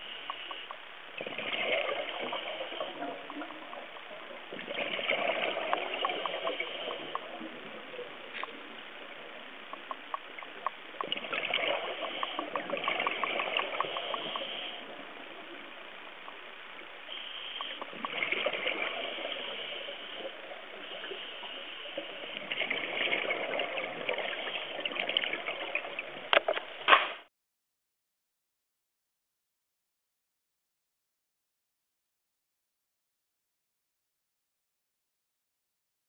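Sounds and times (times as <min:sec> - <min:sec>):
water noise: 0:00.0 - 0:27.0
faint rapid ticks: 0:00.2 - 0:00.8, 0:09.7 - 0:11.2
regulator exhaust bubbling underwater: 0:00.3 - 0:14.8.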